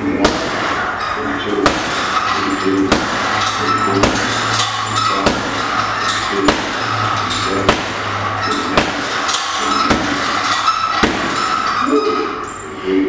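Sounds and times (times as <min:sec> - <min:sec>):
gloves hitting punching bag: 0:00.1 - 0:00.8, 0:01.6 - 0:02.2, 0:02.9 - 0:03.4, 0:04.0 - 0:04.3, 0:05.2 - 0:05.7, 0:06.4 - 0:06.9, 0:07.6 - 0:10.3, 0:11.0 - 0:11.4.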